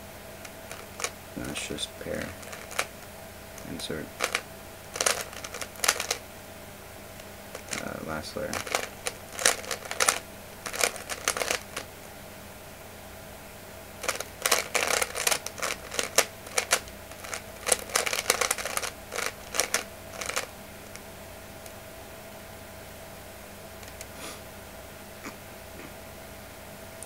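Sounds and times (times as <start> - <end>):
plastic puzzle cube clicking: 0.7 - 1.1, 2.2 - 2.9, 3.6 - 4.4, 5.0 - 6.2, 7.5 - 7.8, 8.5 - 11.9, 14.0 - 21.0.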